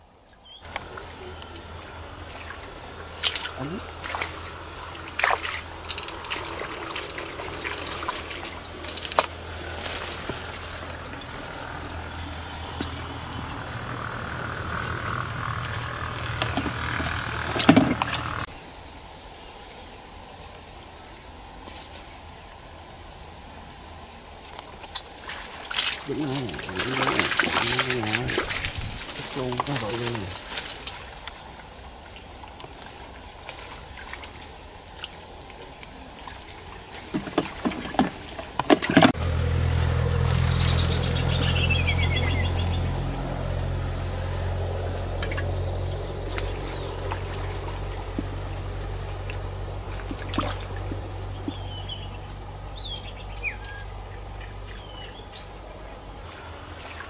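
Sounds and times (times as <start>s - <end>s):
birds chirping: 0.0s - 18.6s, 25.9s - 31.8s, 39.2s - 57.0s
low engine hum: 0.1s - 18.6s, 22.8s - 57.0s.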